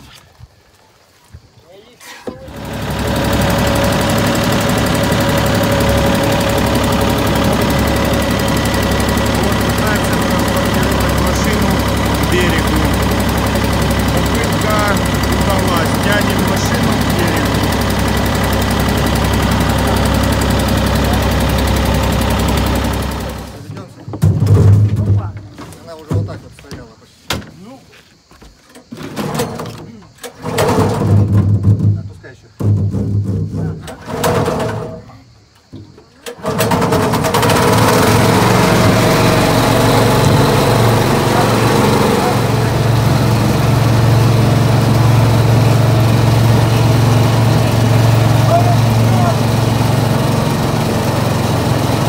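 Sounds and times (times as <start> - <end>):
boat engine droning: 2.3 - 23.6, 37.2 - 52.0.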